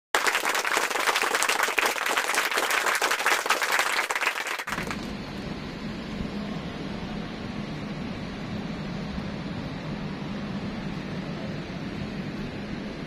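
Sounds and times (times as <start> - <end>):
crowd applauding: 0.2 - 5.1
low background hum: 0.2 - 13.0.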